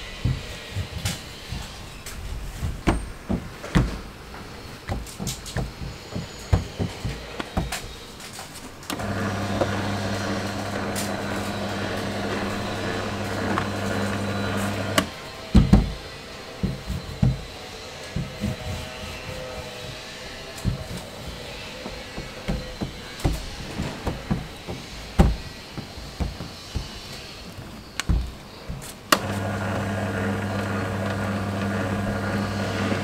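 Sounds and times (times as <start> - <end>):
dough sheeter motor humming: 8.9 - 15.7, 29.1 - 33.0.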